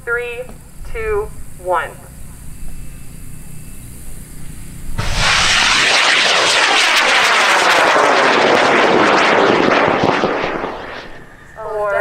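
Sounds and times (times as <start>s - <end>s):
rocket motor roaring with crackle: 2.4s - 12.0s.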